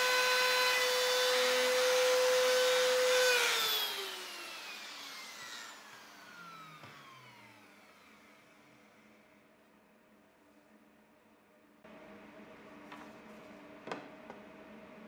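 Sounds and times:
router motor whining: 0:00.0 - 0:08.9.

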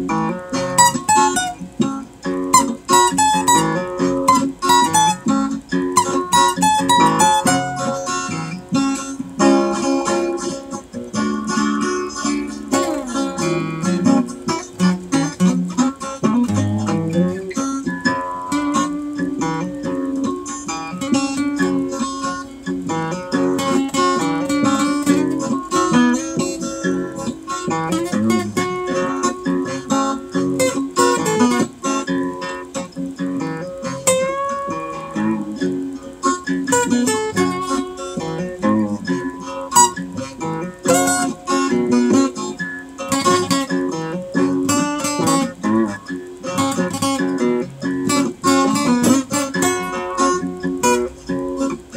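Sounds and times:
acoustic guitar playing: 0:00.0 - 0:51.9.

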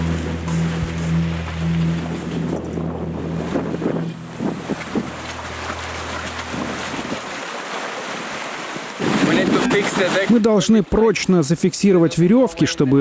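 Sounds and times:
sea water washing around logs: 0:00.0 - 0:10.6
wind buffeting the microphone: 0:08.9 - 0:10.1.

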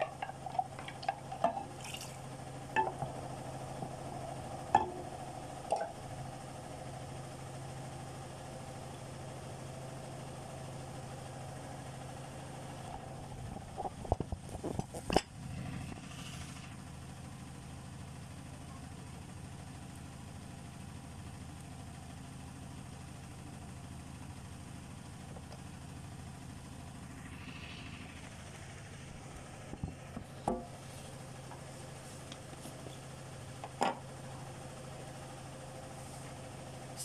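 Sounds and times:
low hum of kitchen machinery: 0:00.0 - 0:37.0.

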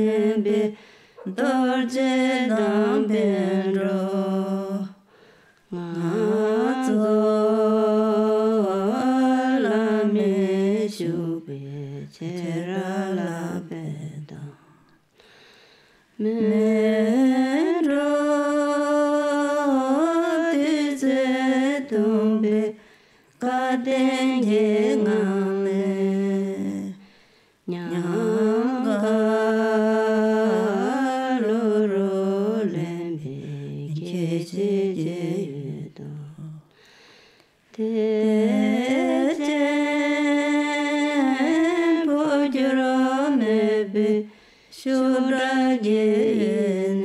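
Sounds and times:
person singing chant-like phrases: 0:00.0 - 0:05.1, 0:05.7 - 0:14.8, 0:27.7 - 0:36.8, 0:37.7 - 0:47.0.

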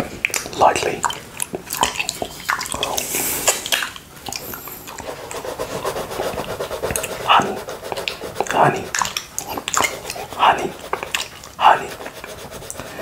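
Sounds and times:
pencil scratching on paper: 0:04.3 - 0:13.0.

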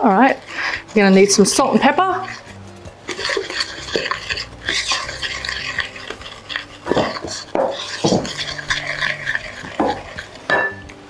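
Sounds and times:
spoon stirring flour: 0:00.0 - 0:11.0
spoon knocking glass bowl: 0:06.9 - 0:08.6, 0:09.7 - 0:10.9.

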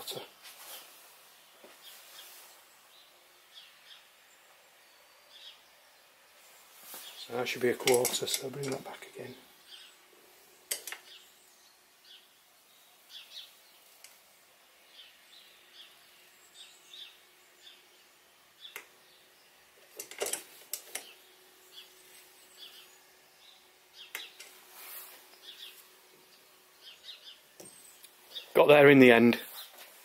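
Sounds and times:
sharp metallic clicks: 0:07.7 - 0:09.0, 0:10.7 - 0:11.2, 0:20.0 - 0:21.2
faint bird chirps: 0:21.0 - 0:28.6.

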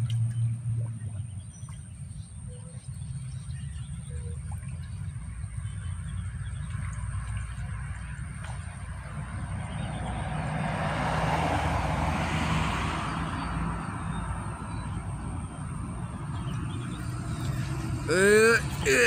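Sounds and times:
steady low traffic rumble: 0:00.0 - 0:19.0
vehicle passing: 0:08.0 - 0:19.0.

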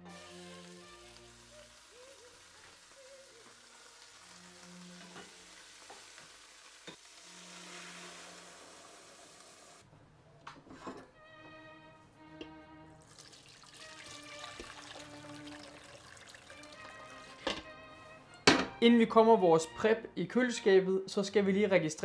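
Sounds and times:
food sizzling in hot oil: 0:00.0 - 0:09.8, 0:13.0 - 0:17.6
faint background music: 0:10.6 - 0:22.0.

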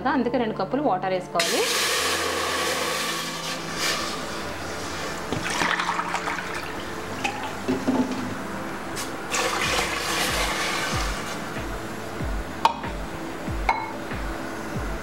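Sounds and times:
water poured into metal pot: 0:01.4 - 0:04.1, 0:05.3 - 0:07.6, 0:09.3 - 0:11.4.

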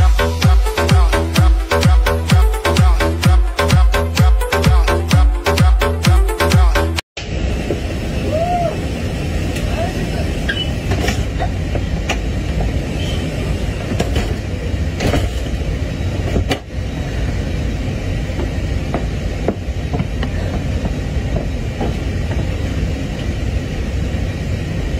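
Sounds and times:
airliner cabin rumble: 0:07.2 - 0:24.9.

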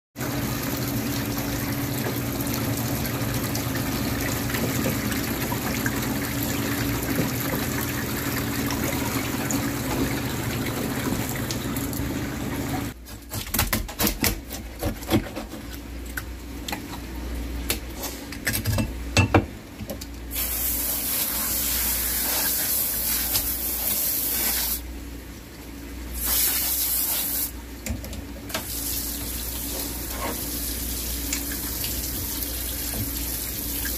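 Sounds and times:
low pump hum: 0:00.2 - 0:13.0, 0:27.6 - 0:33.9
water rushing from a tap: 0:00.2 - 0:13.0, 0:28.5 - 0:33.9.

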